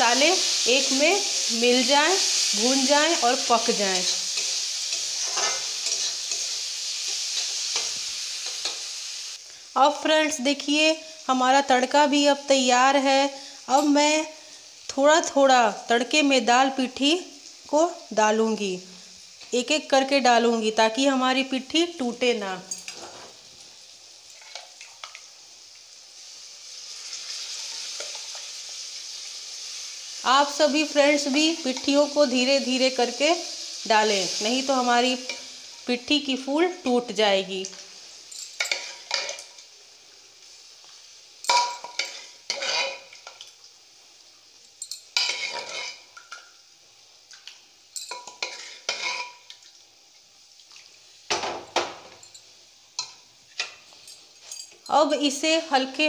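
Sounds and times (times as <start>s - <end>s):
spices sizzling in pan: 0.0s - 56.0s
ladle stirring in pan: 4.0s - 8.9s, 24.2s - 25.3s, 26.8s - 30.0s, 38.4s - 39.7s, 41.5s - 43.6s, 44.9s - 46.6s, 47.3s - 49.9s
metal spoon scraping cookware: 4.4s - 6.5s, 41.5s - 43.1s, 44.9s - 46.1s, 48.0s - 49.4s.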